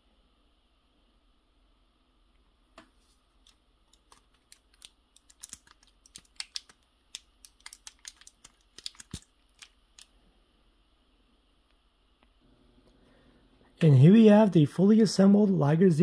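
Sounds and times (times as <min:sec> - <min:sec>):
plastic model parts clicking: 0:03.4 - 0:10.1.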